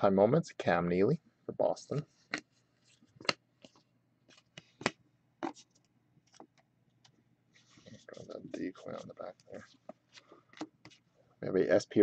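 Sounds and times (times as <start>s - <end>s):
trading cards flipping: 2.3s - 11.0s.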